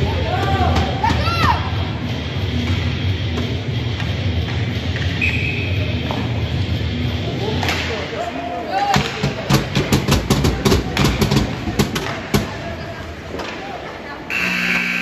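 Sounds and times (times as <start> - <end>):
crowd voices: 0.0 - 15.0
hockey sticks and puck clacking: 2.5 - 6.6, 7.4 - 8.2, 8.8 - 15.0.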